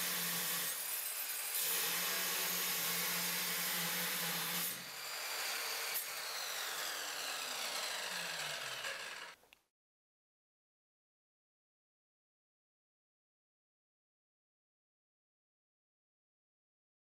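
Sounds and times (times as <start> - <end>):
pipe saw grinding through pipe: 0.0 - 9.4.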